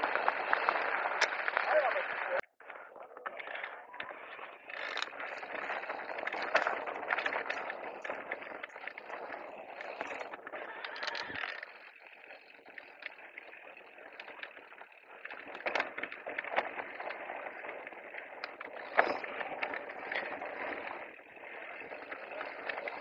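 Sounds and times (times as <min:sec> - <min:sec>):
tyre noise on dirt: 0:00.0 - 0:12.5.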